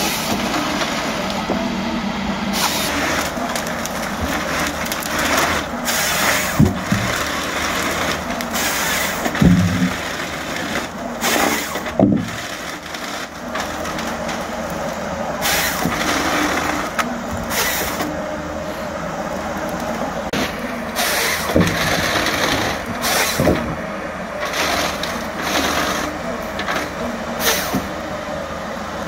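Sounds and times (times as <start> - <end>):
harvester head sawing timber: 0.0 - 19.0, 20.3 - 28.0
diesel engine under hydraulic load: 0.0 - 29.0
logs thudding on ground: 5.9 - 7.2, 8.8 - 10.0.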